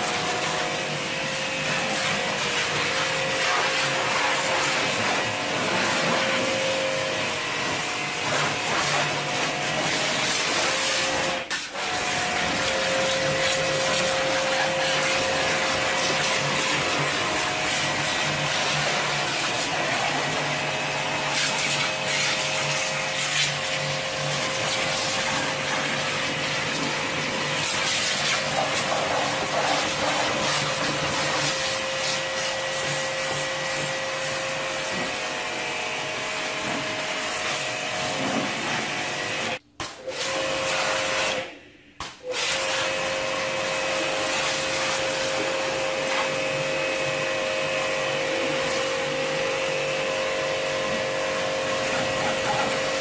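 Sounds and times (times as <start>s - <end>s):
pressure washer motor whine: 0.0s - 39.6s, 42.3s - 53.0s
water jet spraying: 8.3s - 33.9s.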